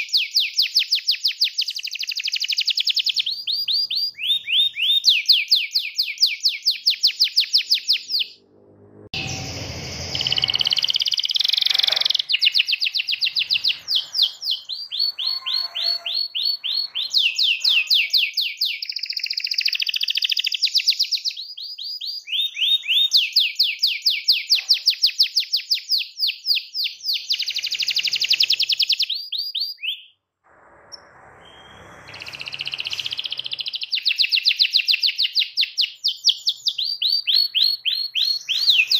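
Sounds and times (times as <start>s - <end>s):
canary singing trills: 0.0s - 8.4s, 9.1s - 30.2s, 30.9s - 38.9s.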